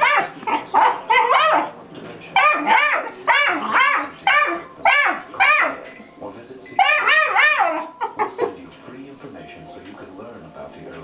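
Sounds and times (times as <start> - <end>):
puppy barking and yipping: 0.0 - 5.9, 6.8 - 8.6.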